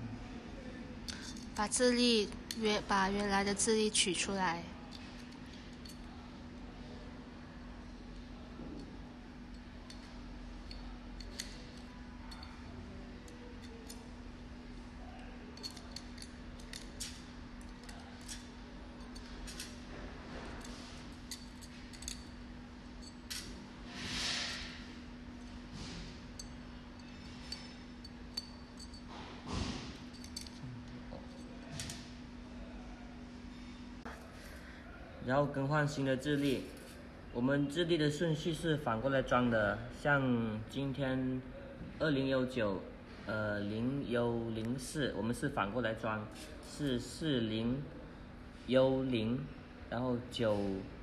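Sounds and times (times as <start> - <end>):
small metallic clicks and clinks: 8.6 - 14.1, 15.5 - 19.8, 20.5 - 22.4, 26.3 - 29.2, 29.9 - 32.1
metal scrapes: 23.8 - 24.9.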